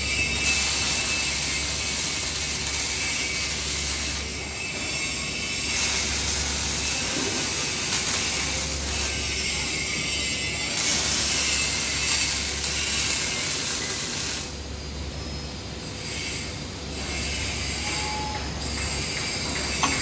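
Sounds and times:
welding arc hissing: 0.0s - 15.3s.

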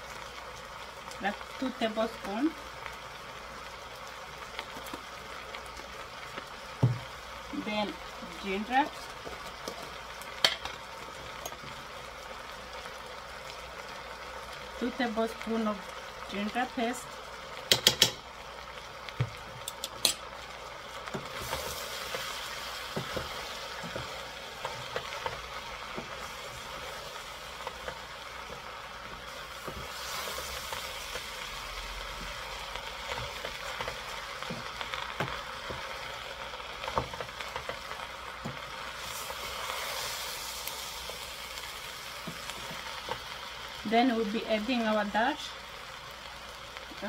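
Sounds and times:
food sizzling: 0.0s - 47.0s
metal spoon knocking on pot: 17.7s - 18.2s
wooden spoon stirring in pot: 20.8s - 43.4s.

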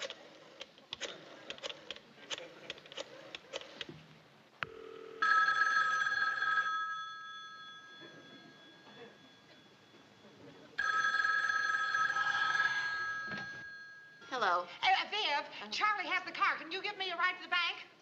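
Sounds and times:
telephone bell ringing: 4.7s - 14.4s.

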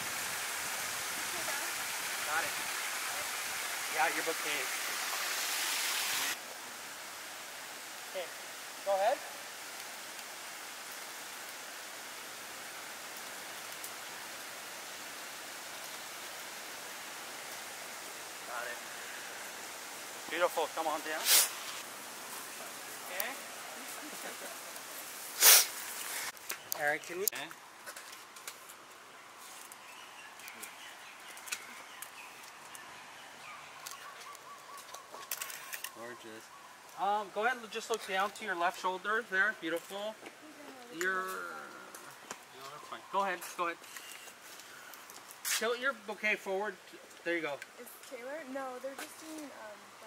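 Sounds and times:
outdoor background hiss: 0.0s - 50.0s
birds chirping: 25.8s - 27.7s, 28.3s - 49.7s.

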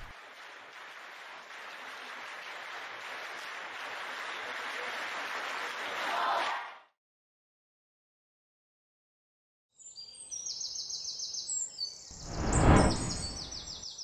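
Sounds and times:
rushing noise riser: 12.2s - 13.6s.

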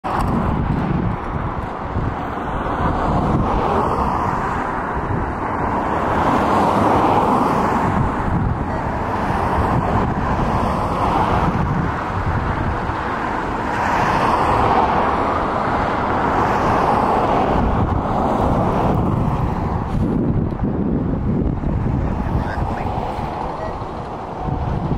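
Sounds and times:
wind buffeting microphone: 0.0s - 24.9s.

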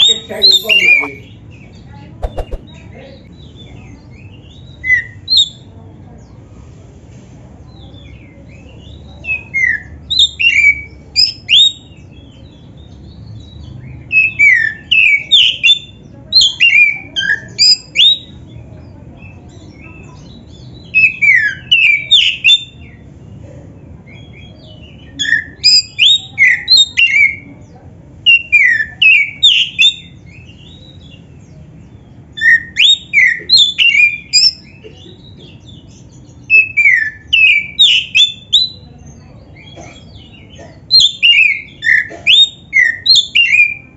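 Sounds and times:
bird singing whistled phrases: 36.5s - 38.8s.

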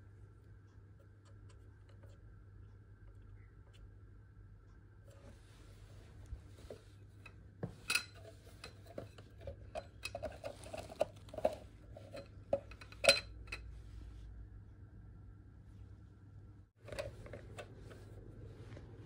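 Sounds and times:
metal tubes clinking and rattling: 7.8s - 13.7s.

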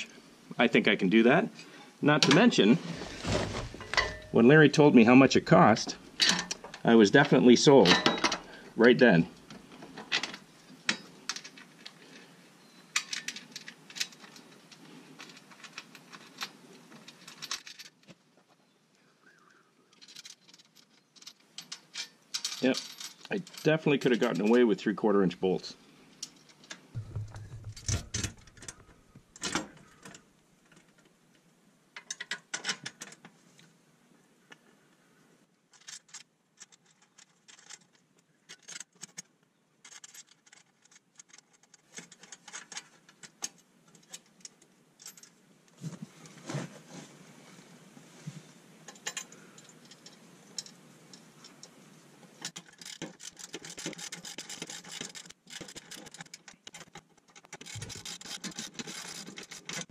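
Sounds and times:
metal clicks taps and scrapes: 52.4s - 59.9s.

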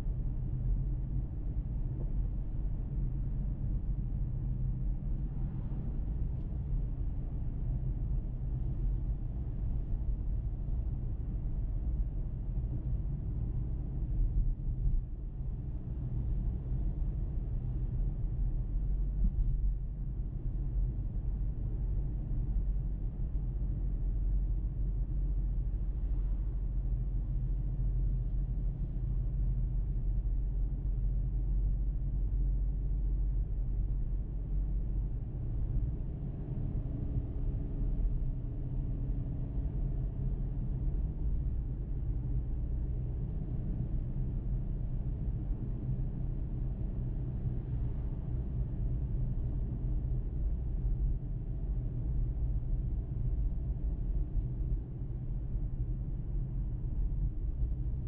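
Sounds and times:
car road and engine rumble: 0.0s - 58.0s.

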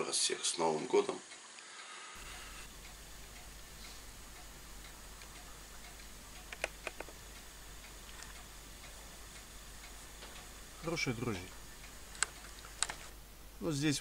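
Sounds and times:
sharp clicks: 2.2s - 13.2s
faint ticking: 2.2s - 14.0s
low steady hum: 2.2s - 14.0s.

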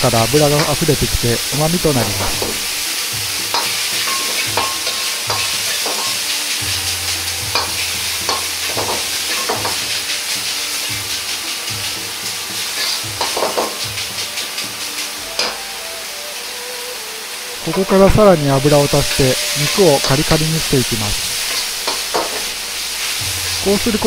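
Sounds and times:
meat sizzling in oil: 0.0s - 24.0s
metal ladle scraping wok: 3.5s - 12.0s, 12.6s - 15.6s.

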